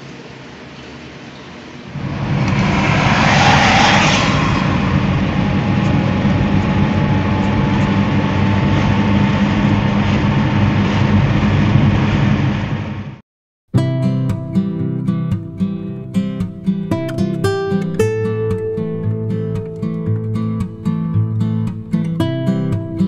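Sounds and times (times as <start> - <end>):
road and wind rush: 1.6 - 13.2
car engine drone: 1.9 - 13.2.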